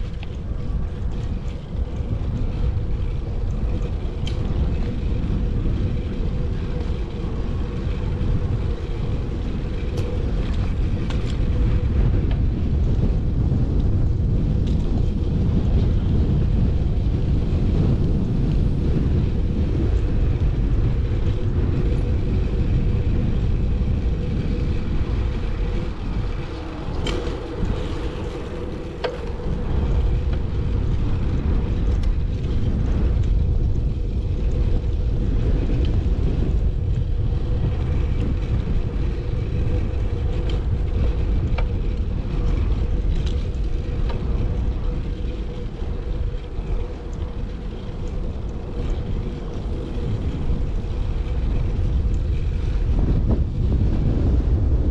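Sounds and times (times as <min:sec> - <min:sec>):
wind buffeting microphone: 0:00.0 - 0:54.9.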